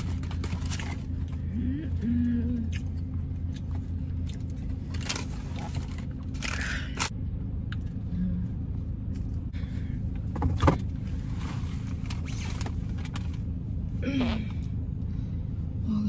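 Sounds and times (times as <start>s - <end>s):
car engine hum inside cabin: 0.0s - 16.0s.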